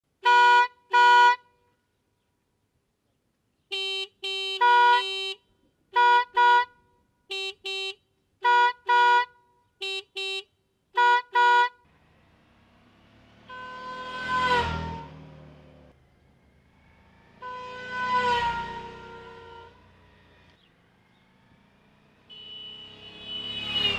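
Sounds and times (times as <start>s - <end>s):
motorcycle engine: 11.8s - 23.9s
two-tone air horn blasts: 13.5s - 15.2s, 17.4s - 19.9s, 22.3s - 23.9s.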